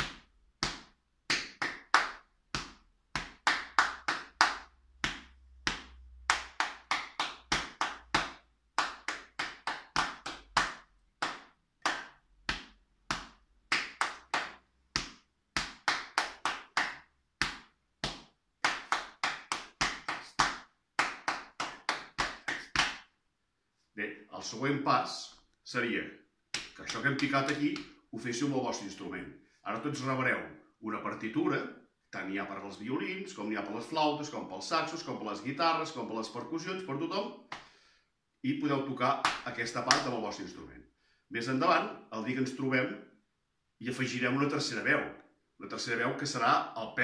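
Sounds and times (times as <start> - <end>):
hand slaps on chest: 0.0 - 23.1, 26.5 - 28.0, 37.5 - 37.8, 39.2 - 40.1.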